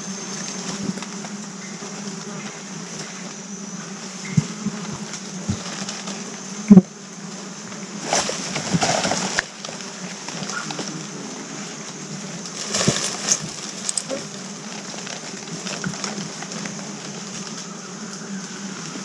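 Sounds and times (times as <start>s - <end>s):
insect buzzing: 0.0s - 19.0s
rustling: 4.3s - 11.2s, 11.9s - 19.0s.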